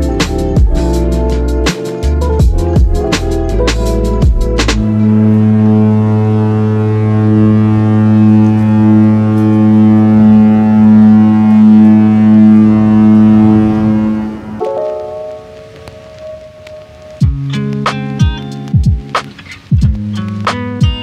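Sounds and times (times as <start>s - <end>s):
ship's horn low blast: 4.8s - 17.1s.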